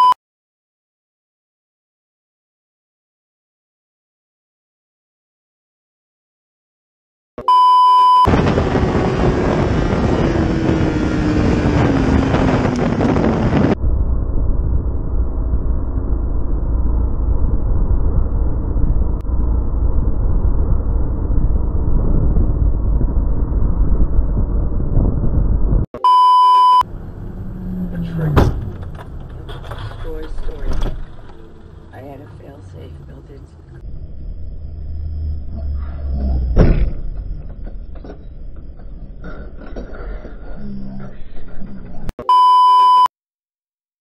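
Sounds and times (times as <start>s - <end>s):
motorcycle engine rumble: 8.3s - 25.9s
wind rushing over microphone: 8.3s - 25.9s.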